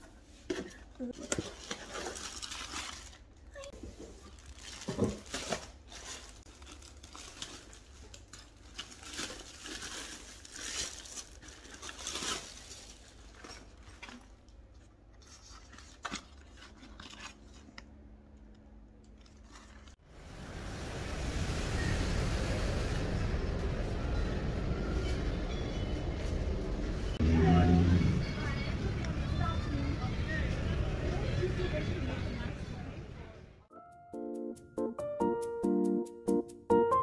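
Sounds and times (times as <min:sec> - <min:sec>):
plastic bag crinkling and tearing: 0:01.2 - 0:14.3, 0:19.2 - 0:20.0.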